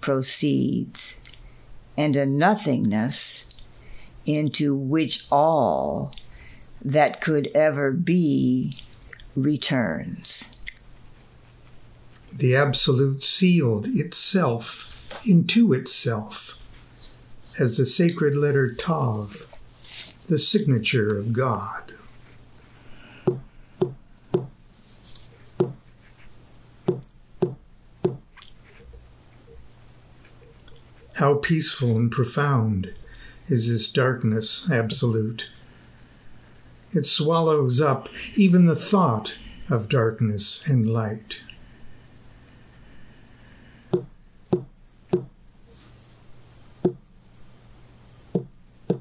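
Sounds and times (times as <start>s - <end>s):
knocks on a hard surface: 23.3s - 24.6s, 26.9s - 28.2s, 44.0s - 45.3s.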